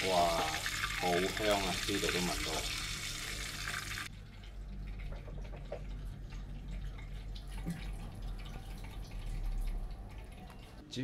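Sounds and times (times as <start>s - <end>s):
wok sizzling: 0.0s - 4.1s.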